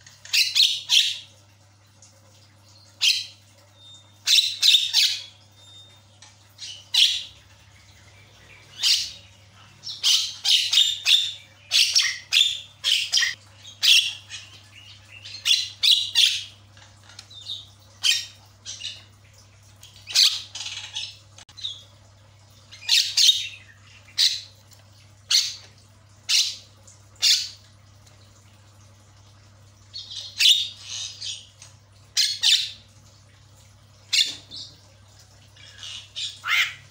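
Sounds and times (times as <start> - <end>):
bird squawking: 35.6 - 36.9.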